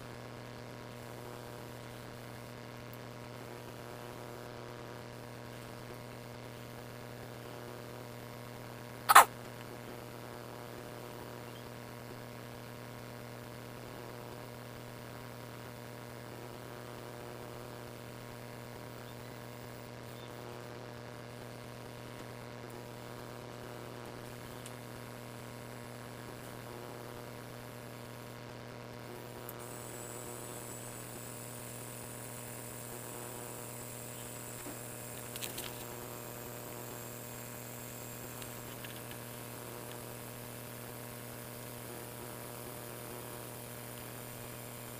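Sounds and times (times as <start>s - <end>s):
electric hum: 0.0s - 44.9s
faint high whine: 9.0s - 10.0s, 10.7s - 12.6s, 15.6s - 44.9s.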